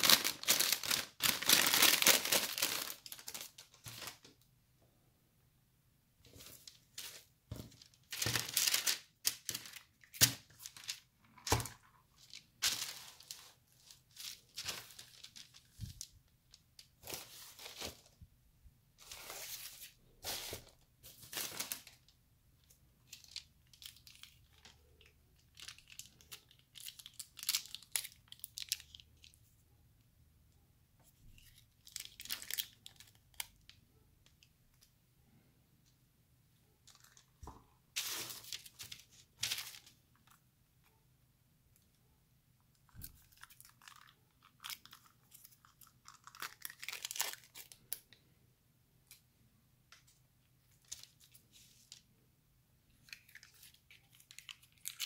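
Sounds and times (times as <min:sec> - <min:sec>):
paper packaging rustling: 0:00.0 - 0:04.3, 0:06.3 - 0:18.2, 0:19.0 - 0:22.0, 0:36.8 - 0:40.4.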